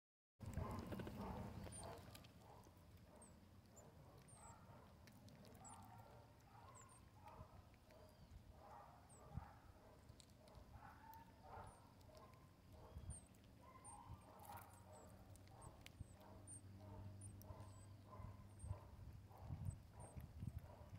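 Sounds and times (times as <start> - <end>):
marmosets chirping: 6.6 - 7.1, 12.7 - 18.8.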